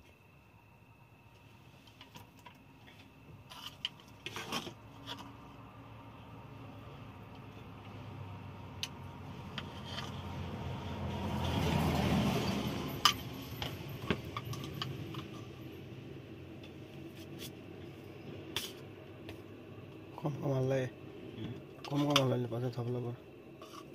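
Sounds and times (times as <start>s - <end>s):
road noise: 1.4s - 23.9s
truck engine: 7.8s - 16.7s.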